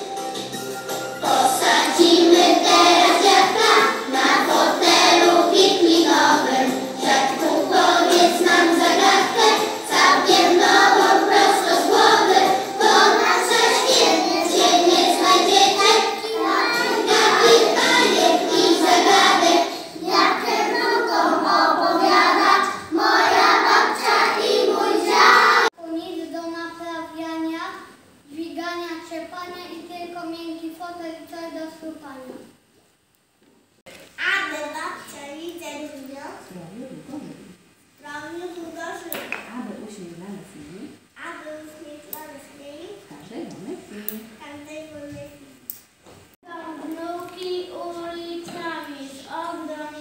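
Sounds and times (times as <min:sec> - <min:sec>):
children singing in unison: 0:01.2 - 0:25.7.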